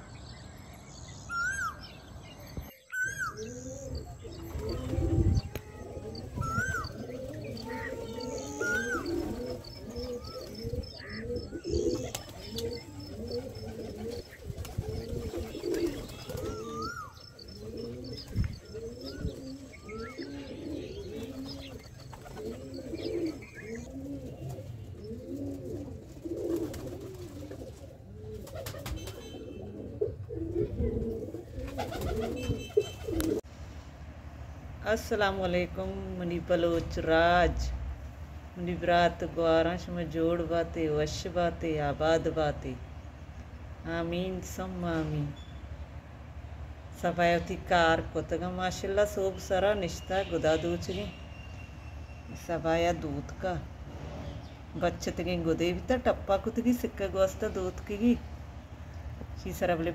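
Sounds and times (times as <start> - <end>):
pigeons cooing: 2.5 - 33.5.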